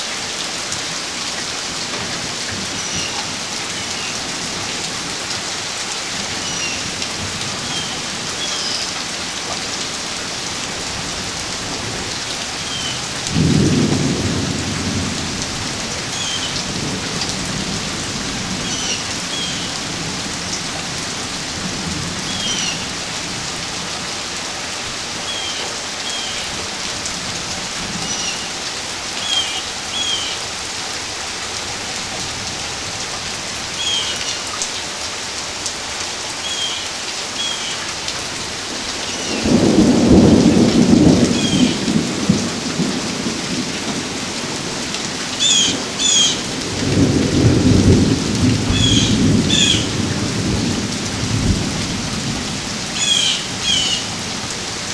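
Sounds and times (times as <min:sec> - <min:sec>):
steady rain falling: 0:00.0 - 0:54.9
thunder rumbling: 0:13.1 - 0:20.2, 0:38.6 - 0:44.8, 0:45.8 - 0:53.8.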